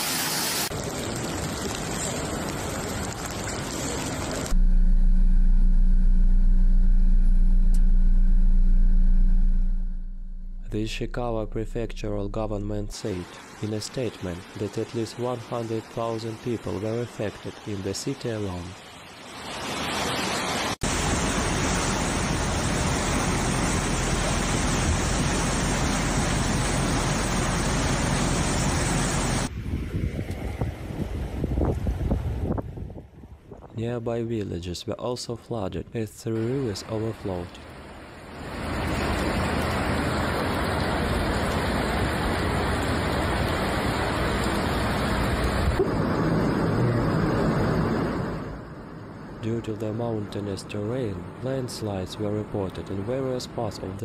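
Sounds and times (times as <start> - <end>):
flood torrent rushing: 0.0 - 4.6, 12.6 - 29.5, 36.4 - 48.6.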